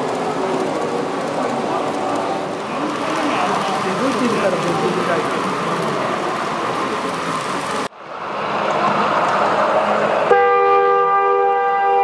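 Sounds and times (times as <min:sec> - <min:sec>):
crowd murmur: 0:00.0 - 0:10.3
miniature train running on track: 0:00.0 - 0:10.4
two-tone train horn: 0:10.3 - 0:12.0.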